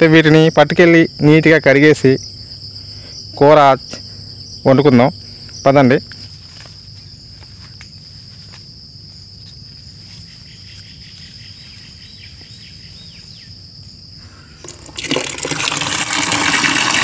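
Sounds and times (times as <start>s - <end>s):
insects whining: 0.0s - 17.0s
tap water pouring into bucket: 14.6s - 17.0s.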